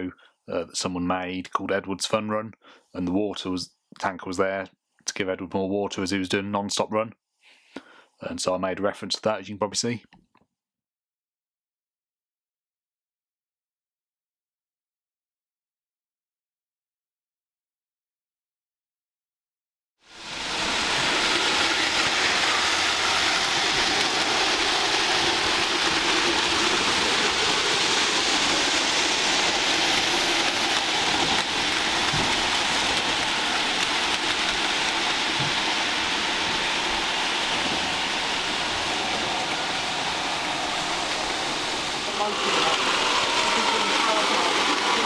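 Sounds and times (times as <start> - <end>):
model train wheels rattling on track: 20.4 - 45.0.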